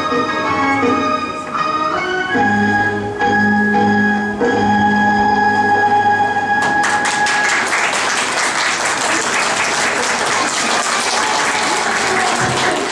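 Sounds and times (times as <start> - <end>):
audience applause: 6.6 - 12.9.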